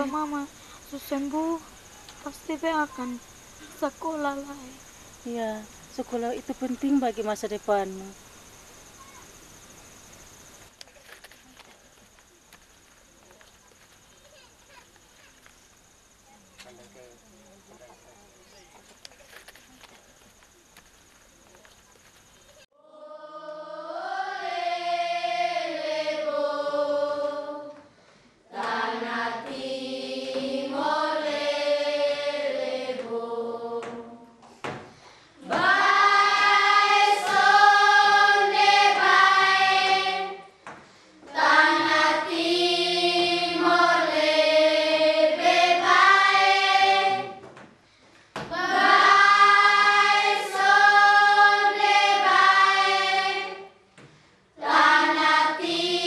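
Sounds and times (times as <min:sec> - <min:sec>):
children singing together: 0:22.8 - 0:27.9, 0:28.5 - 0:34.4, 0:35.4 - 0:40.5, 0:41.2 - 0:47.5, 0:48.5 - 0:53.8, 0:54.6 - 0:56.0.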